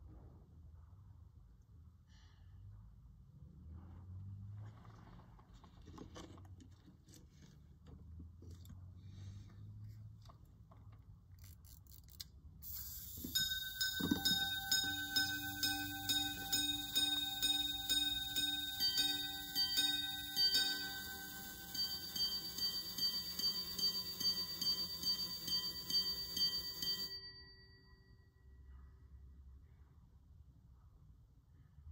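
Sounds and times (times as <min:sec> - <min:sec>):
pocket watch gong strikes: 0:13.3 - 0:27.2.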